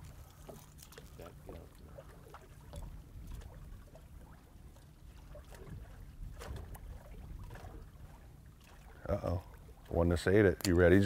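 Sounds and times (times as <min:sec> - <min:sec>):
water lapping at boat: 0:00.0 - 0:11.0
water splashes: 0:00.0 - 0:11.0
wind rumbling on microphone: 0:01.4 - 0:04.4, 0:05.1 - 0:08.2.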